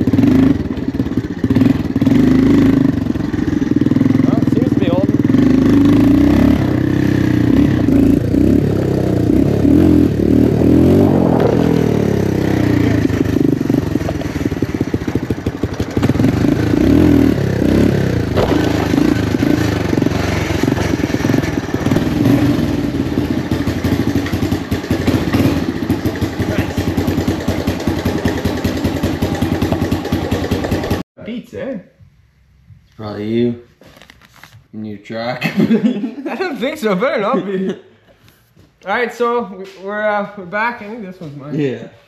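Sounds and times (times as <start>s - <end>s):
three-wheeler engine revving: 0.0s - 31.1s.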